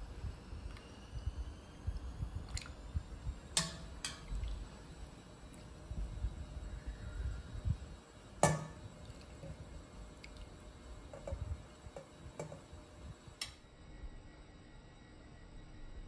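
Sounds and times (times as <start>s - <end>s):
metal ladle clinking on pot: 8.4s - 8.8s.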